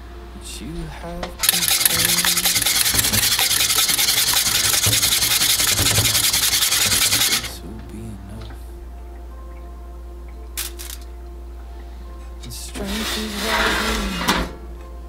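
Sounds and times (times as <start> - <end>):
whisk rattling in metal bowl: 1.4 - 7.5.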